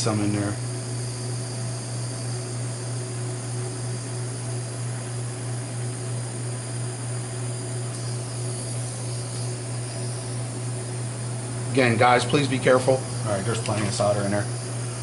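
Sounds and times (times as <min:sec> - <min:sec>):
steady low hum: 0:00.0 - 0:15.0
gas torch hissing: 0:05.9 - 0:15.0.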